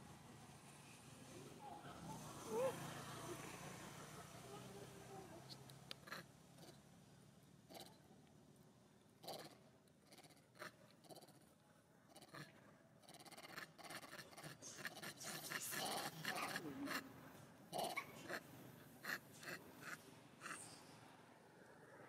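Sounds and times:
monkeys making short noises: 0:09.2 - 0:11.5, 0:12.1 - 0:17.1, 0:17.7 - 0:20.8.

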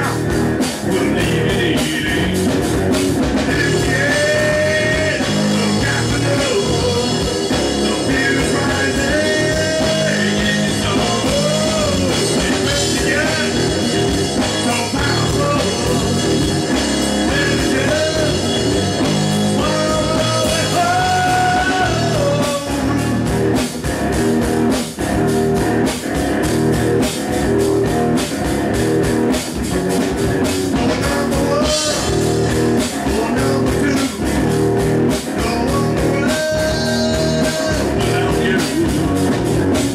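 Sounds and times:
male lead vocal: 0:00.0 - 0:23.4, 0:30.7 - 0:39.9
punk rock band playing: 0:00.0 - 0:39.9.

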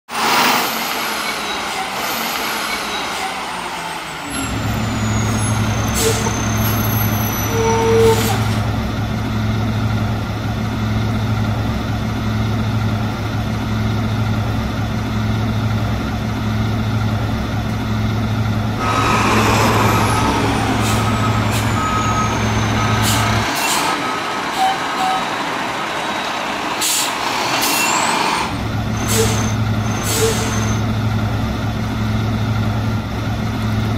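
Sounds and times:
diesel engine humming: 0:01.1 - 0:33.9
air brake hisses: 0:18.8 - 0:24.0, 0:26.8 - 0:30.8
reversing beeps: 0:19.4 - 0:25.3.

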